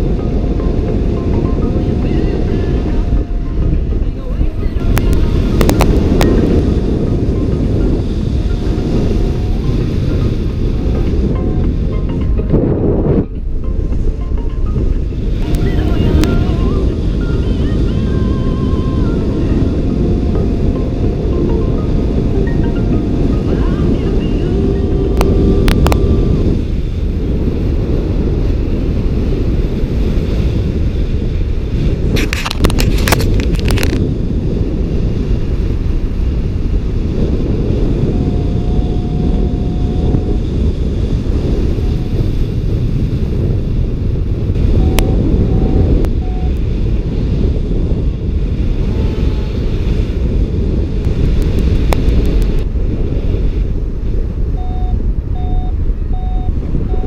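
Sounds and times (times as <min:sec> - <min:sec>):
wind rumbling on microphone: 0:00.0 - 0:57.0
short high beeps: 0:44.7 - 0:46.6, 0:54.6 - 0:57.0.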